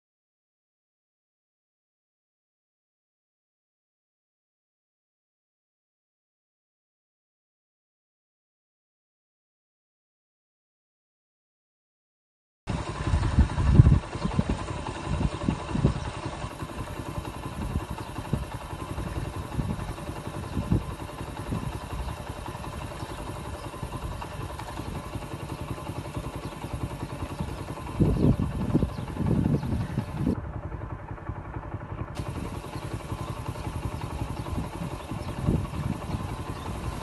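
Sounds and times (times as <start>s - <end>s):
gusty wind buffeting microphone: 12.7s - 37.0s.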